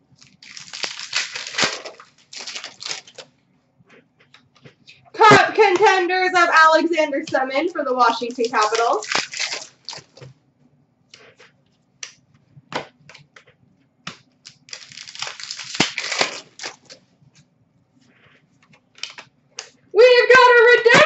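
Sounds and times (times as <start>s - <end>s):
foil wrappers crinkling: 0.0s - 3.3s, 7.8s - 10.3s, 14.4s - 17.0s, 19.0s - 19.3s.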